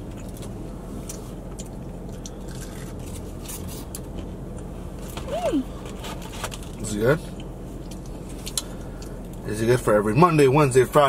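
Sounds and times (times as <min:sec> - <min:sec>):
steady low hum: 0:00.0 - 0:11.0
faint chewing: 0:00.1 - 0:04.7, 0:07.3 - 0:09.4
food packaging rustling and clicking: 0:05.0 - 0:06.8.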